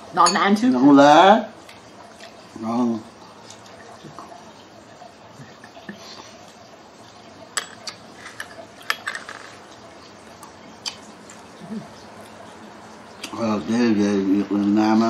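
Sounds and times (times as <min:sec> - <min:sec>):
utensils clinking on ceramic bowls: 0:00.2 - 0:00.5, 0:07.6 - 0:09.6.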